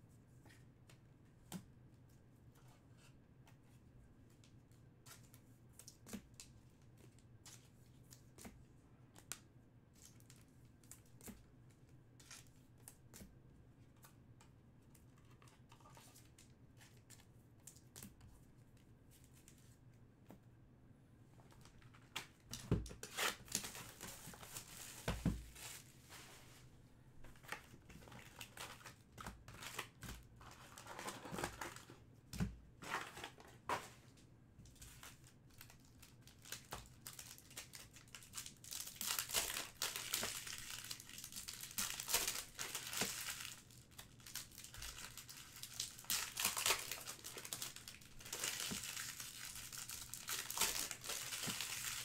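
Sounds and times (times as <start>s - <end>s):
wrappers tearing and crinkling: 23.0s - 25.9s, 34.9s - 52.0s.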